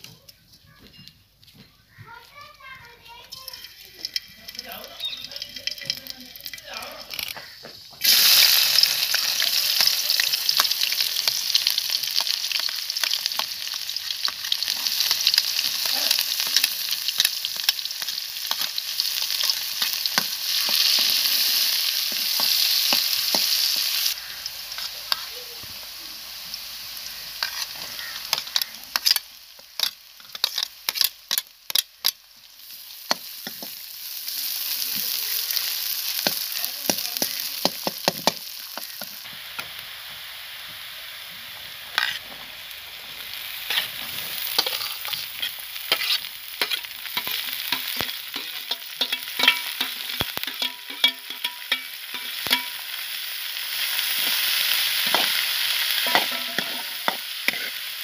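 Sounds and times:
food sizzling in hot oil: 2.0 - 58.0
ladle scraping metal pan: 44.6 - 52.8, 56.0 - 57.8.

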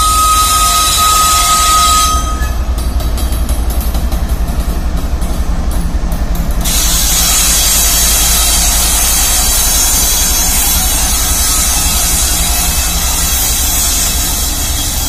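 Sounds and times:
locomotive horn: 0.0 - 2.6
locomotive diesel engine throbbing: 0.0 - 15.0
steady hiss: 5.2 - 15.0.

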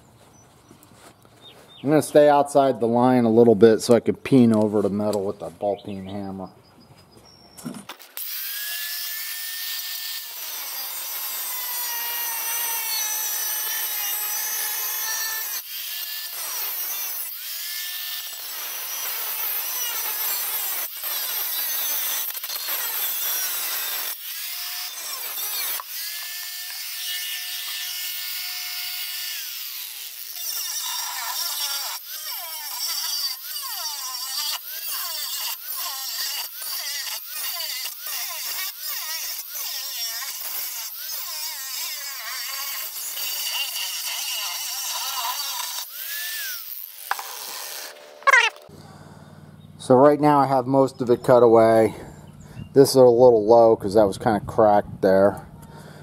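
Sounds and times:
angle grinder cutting steel: 7.8 - 48.8.

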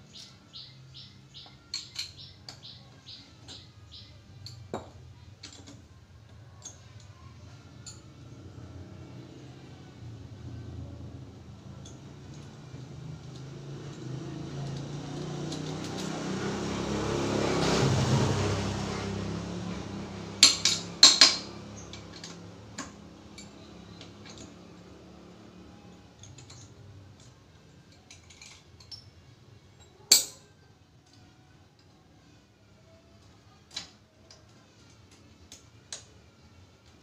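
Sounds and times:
metal tools clinking: 1.6 - 2.6, 20.4 - 24.6, 27.8 - 29.2, 29.8 - 30.5.

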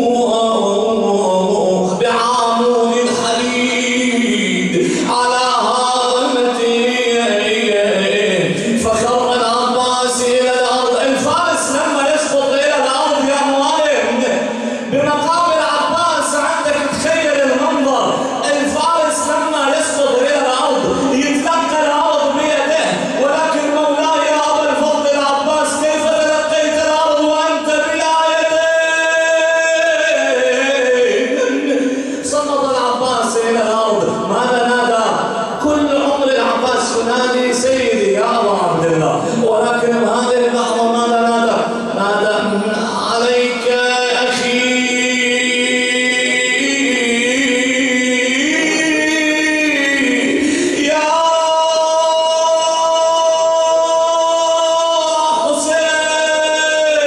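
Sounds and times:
man chanting into microphone: 0.0 - 57.0.

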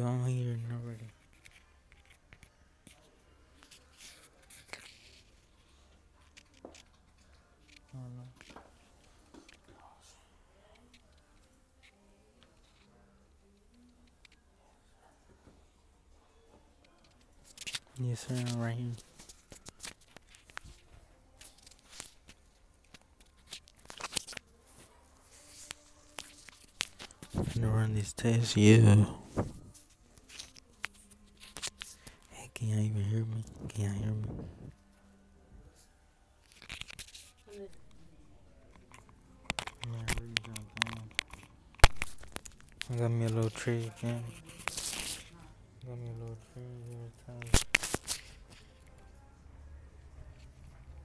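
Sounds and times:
phone handling clicks and rustles: 38.8 - 42.9.

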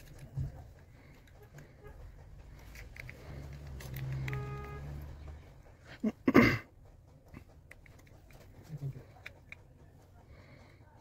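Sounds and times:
small clicks: 0.0 - 5.4.

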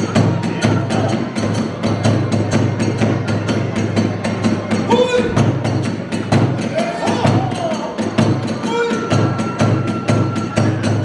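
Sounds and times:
drum strokes: 0.0 - 11.0.

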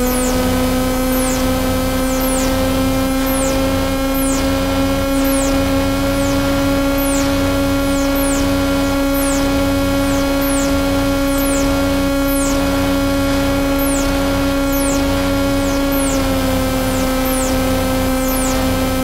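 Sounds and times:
high falling electronic chirps: 0.0 - 19.0
low electronic drone: 0.0 - 19.0.

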